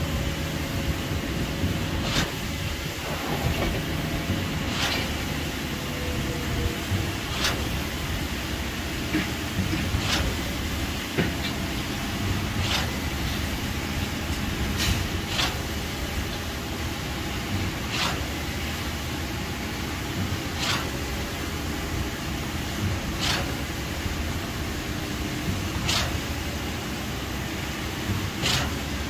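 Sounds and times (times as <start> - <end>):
machine engine running: 0.0 - 8.4
short sharp swishes: 12.6 - 13.0, 17.9 - 18.2, 23.2 - 23.5, 25.8 - 26.2, 28.4 - 28.8.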